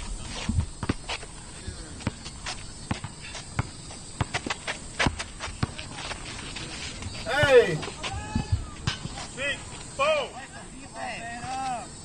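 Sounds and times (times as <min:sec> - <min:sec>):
sneakers scuffing: 0:00.0 - 0:10.0, 0:11.3 - 0:11.9
basketball bouncing on asphalt: 0:00.4 - 0:06.2.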